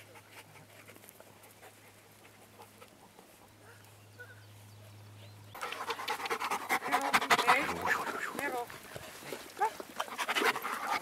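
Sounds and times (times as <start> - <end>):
dog panting: 5.6 - 11.0.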